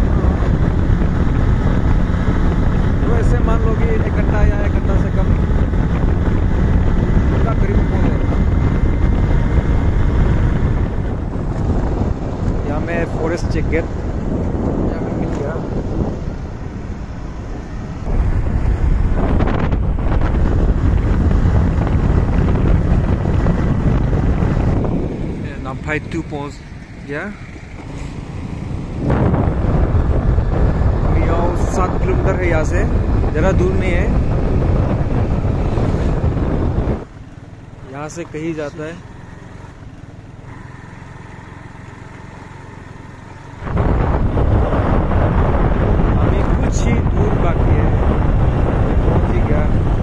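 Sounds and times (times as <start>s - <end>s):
wind rumbling on microphone: 0.0s - 50.0s
scooter engine running: 13.5s - 31.5s, 32.8s - 46.2s.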